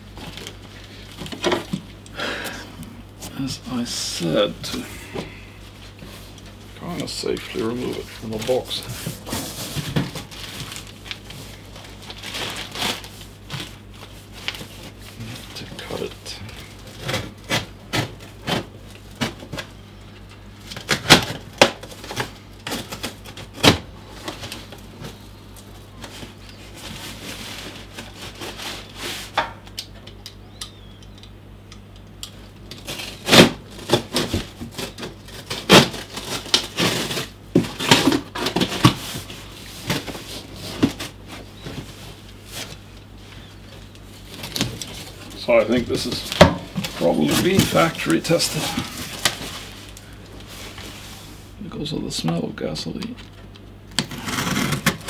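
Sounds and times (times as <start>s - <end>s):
rustling plastic and cardboard: 0.0s - 2.0s, 4.7s - 29.7s, 32.4s - 51.6s, 53.0s - 55.0s
steady low hum: 0.0s - 55.0s.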